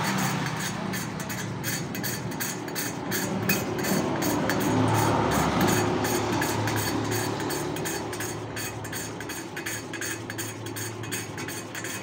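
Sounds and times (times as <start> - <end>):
gritty metal scraping and clicking: 0.0 - 12.0.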